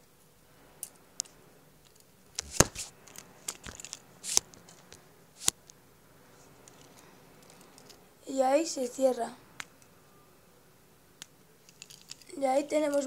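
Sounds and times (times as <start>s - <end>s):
small metal clicks and scrapes: 0.8s - 5.6s, 6.4s - 8.1s, 11.6s - 13.0s.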